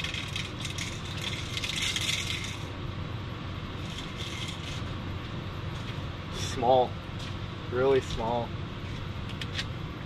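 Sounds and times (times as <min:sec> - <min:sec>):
fishing line pulled from rattle reel: 0:00.0 - 0:02.6, 0:03.9 - 0:04.8.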